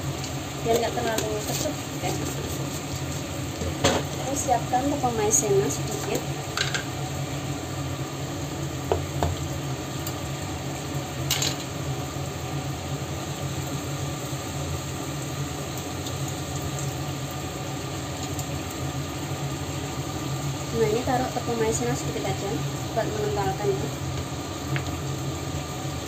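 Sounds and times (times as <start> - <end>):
sauce bubbling in frying pan: 0.0 - 26.0.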